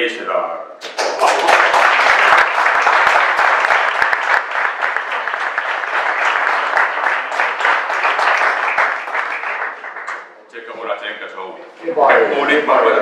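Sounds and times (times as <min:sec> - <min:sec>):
audience applauding: 0:00.8 - 0:10.3.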